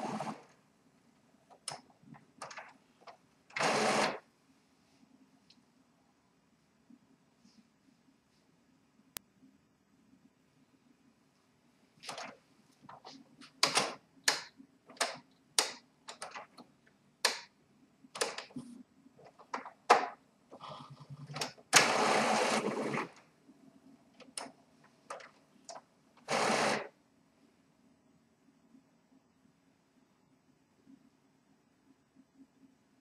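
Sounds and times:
printer mechanical clicks and clacks: 0:01.5 - 0:04.2, 0:12.0 - 0:17.6, 0:18.2 - 0:20.2, 0:21.2 - 0:23.2, 0:24.2 - 0:26.9
print-head carriage moving: 0:03.5 - 0:04.2, 0:25.1 - 0:26.9.

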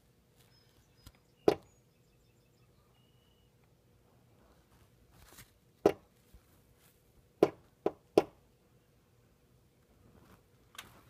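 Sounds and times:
soft rustle: 0:00.3 - 0:01.0, 0:04.0 - 0:07.3, 0:09.8 - 0:11.0.

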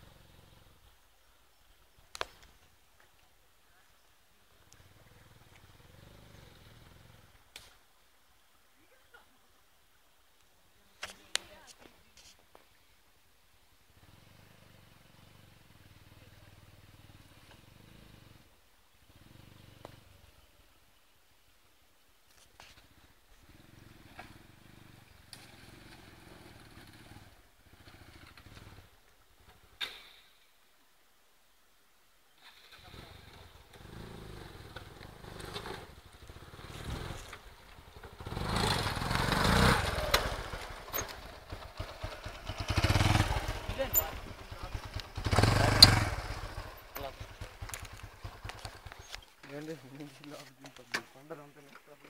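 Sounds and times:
engine humming: 0:22.7 - 0:29.8, 0:32.5 - 0:50.0.

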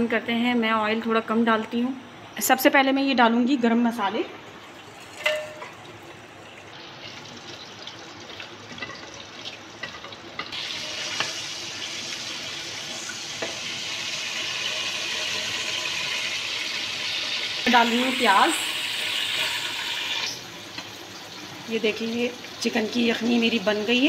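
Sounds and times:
spices sizzling in hot oil: 0:04.8 - 0:24.0.

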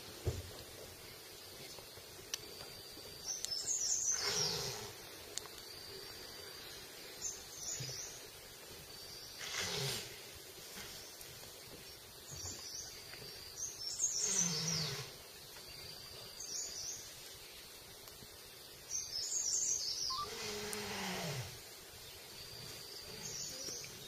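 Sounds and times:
high insect drone: 0:00.2 - 0:24.0
bird chirping: 0:01.1 - 0:04.7, 0:18.8 - 0:20.9, 0:22.0 - 0:24.0.

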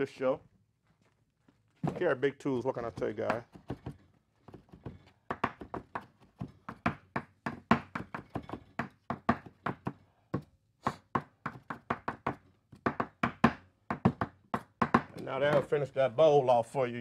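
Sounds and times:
knife chopping on cutting board: 0:10.8 - 0:15.6.

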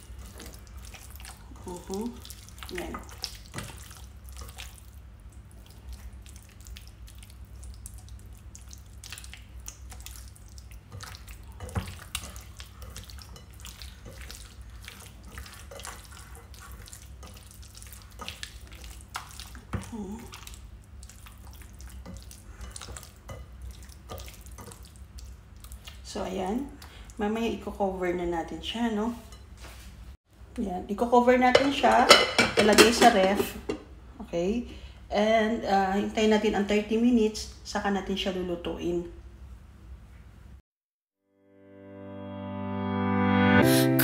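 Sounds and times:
hands squishing meat in marinade: 0:00.0 - 0:26.9
wet squelches and clicks: 0:00.2 - 0:26.1.

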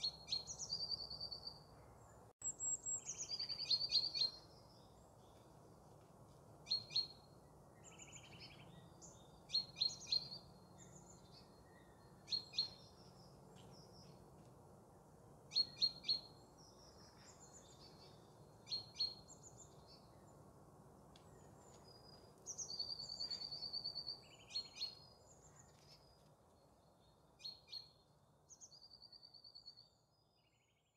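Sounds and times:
low steady background noise: 0:00.0 - 0:30.9
birds calling with ringing trills: 0:02.4 - 0:05.4, 0:07.8 - 0:14.2.

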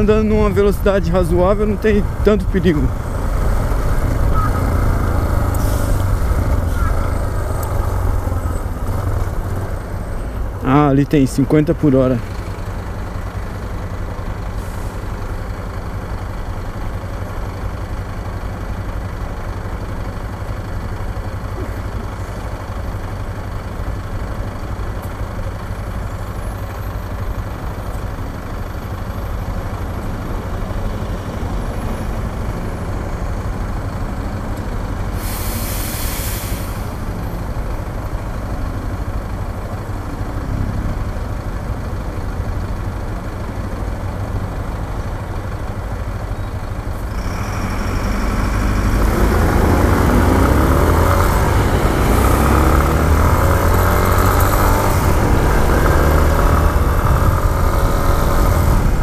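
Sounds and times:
city traffic: 0:00.0 - 0:59.0
air brakes hissing: 0:05.5 - 0:06.8, 0:35.1 - 0:37.2.

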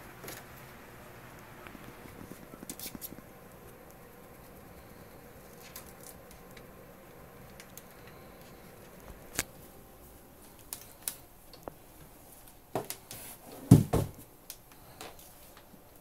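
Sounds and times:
cardboard box heavy thumps: 0:13.6 - 0:14.2.

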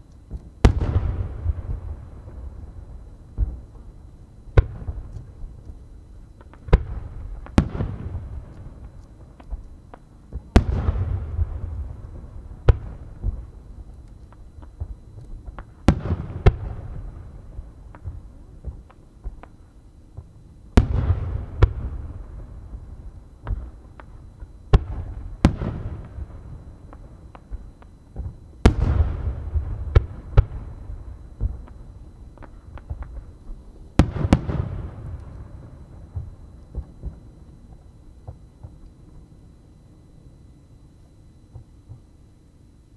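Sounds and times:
firework booms: 0:00.3 - 0:03.8, 0:06.4 - 0:08.9, 0:10.3 - 0:13.6, 0:20.2 - 0:38.8
rolling echo: 0:00.3 - 0:42.1
firework pops and crackles: 0:04.5 - 0:12.0, 0:12.6 - 0:22.2, 0:23.4 - 0:30.7, 0:31.4 - 0:39.0.

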